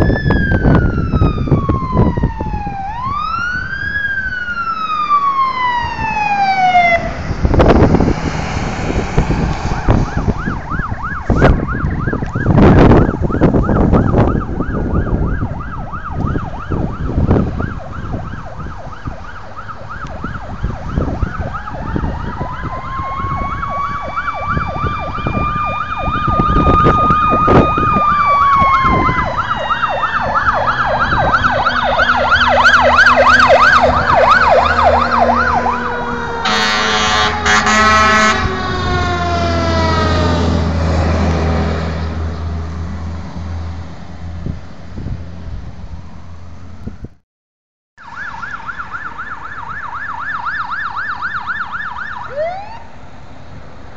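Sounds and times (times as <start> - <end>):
siren yelping: 0.0 - 8.2, 8.9 - 40.7, 48.0 - 52.9
truck engine rumble: 0.0 - 47.2
air horn blasts: 36.4 - 38.7.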